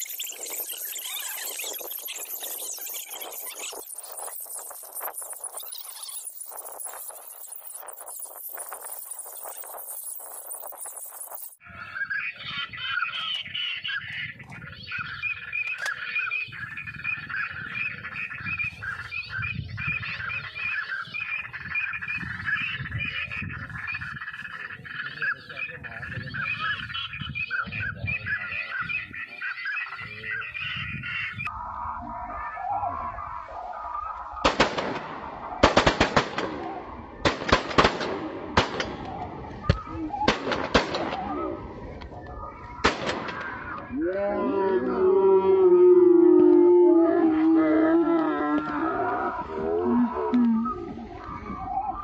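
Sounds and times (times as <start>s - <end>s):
many birds calling: 0.0s - 52.0s
shotgun blasts: 34.4s - 41.4s, 42.8s - 43.8s.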